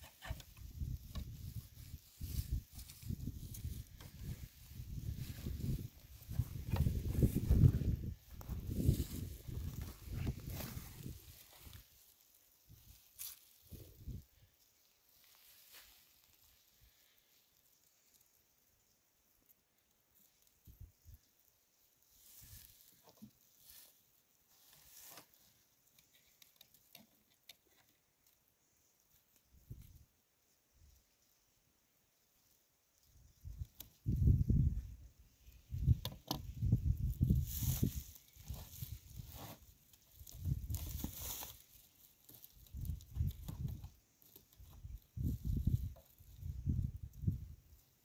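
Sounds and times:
rustling of dry hay and twine: 0.0 - 48.0
wind buffeting microphone: 0.6 - 11.2.

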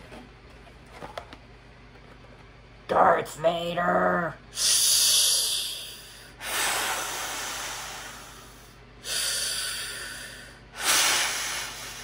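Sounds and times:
rasping breaths behind a mask: 4.6 - 12.0.

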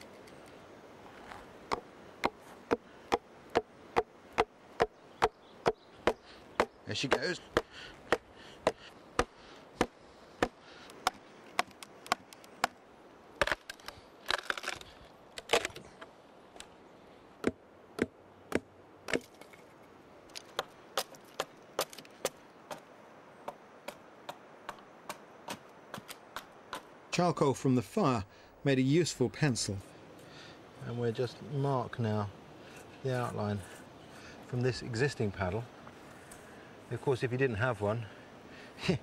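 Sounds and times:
hammering wedges into log: 1.7 - 12.8
wood cracking: 4.8 - 12.8, 13.4 - 16.7.

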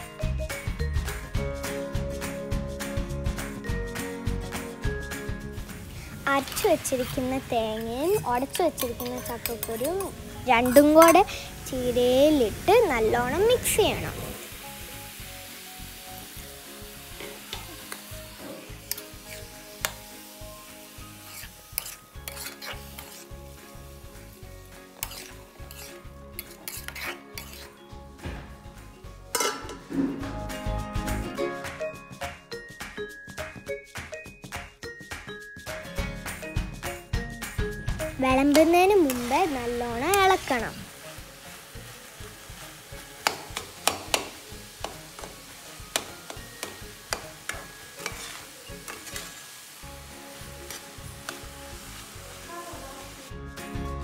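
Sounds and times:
food sizzling in a pan: 0.0 - 34.3, 34.9 - 53.8
metal spatula scraping a pan: 6.0 - 11.5, 17.2 - 20.0, 20.9 - 23.6, 24.7 - 27.9, 29.3 - 30.4, 38.6 - 41.0, 42.3 - 49.6, 50.3 - 52.0.

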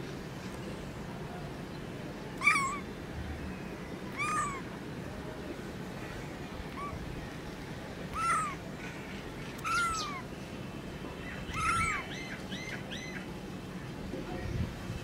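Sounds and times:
low background noise: 0.0 - 15.0
kitten meowing: 2.4 - 2.8, 4.1 - 4.7, 8.1 - 8.6, 9.6 - 10.2, 11.5 - 12.0.

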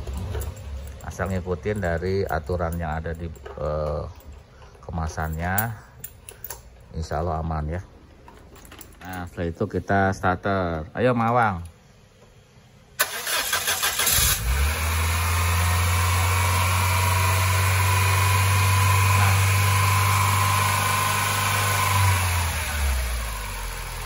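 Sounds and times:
starter motor cranking: 13.0 - 24.0
car engine idling: 14.7 - 24.0.

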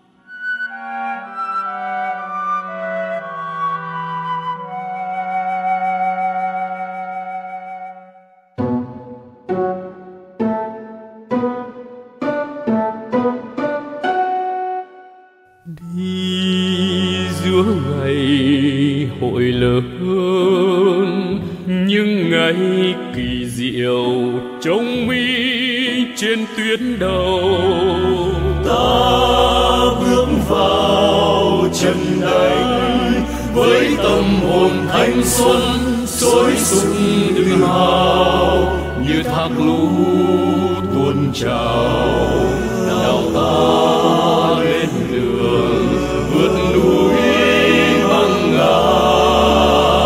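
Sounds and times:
singing with orchestral accompaniment: 15.6 - 50.0.

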